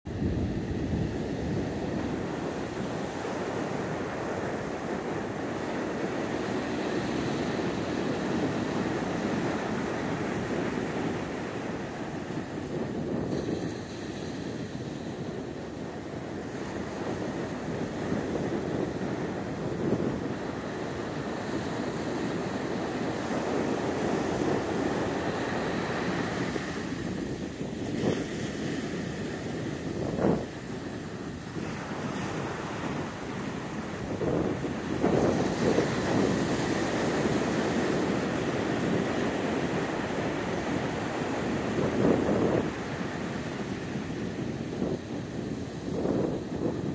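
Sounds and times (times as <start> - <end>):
ocean surf breaking on beach: 0.1 - 46.9
wind on microphone: 0.1 - 46.9.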